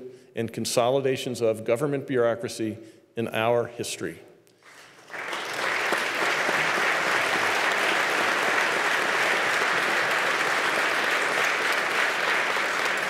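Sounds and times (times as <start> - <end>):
crowd applauding: 4.7 - 13.0.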